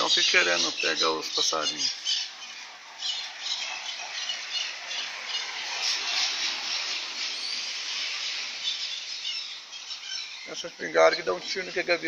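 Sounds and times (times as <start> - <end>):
heavy rain hiss: 0.0 - 12.0.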